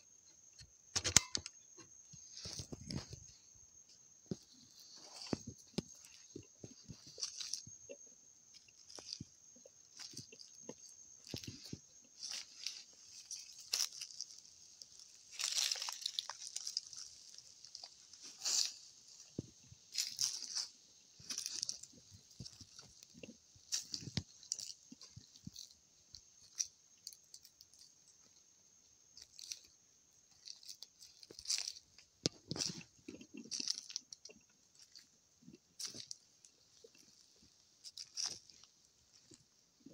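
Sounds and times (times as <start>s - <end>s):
footsteps through dry brush: 4.4s - 7.7s, 11.2s - 25.7s, 30.4s - 34.1s, 36.8s - 39.4s.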